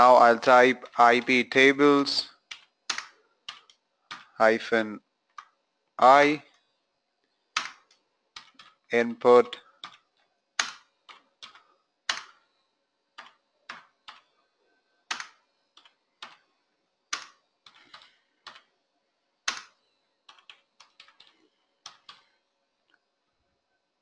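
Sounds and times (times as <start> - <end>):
computer keyboard typing: 2.4 - 4.4, 7.5 - 8.8, 9.4 - 12.4, 13.1 - 14.3, 15.1 - 16.5, 17.1 - 18.7, 19.4 - 22.3.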